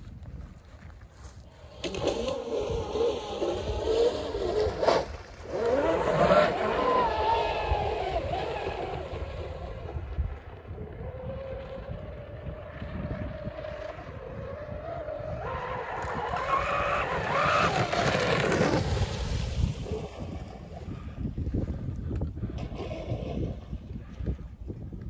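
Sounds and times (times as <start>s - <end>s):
electric motors whining: 1.5s - 19.0s.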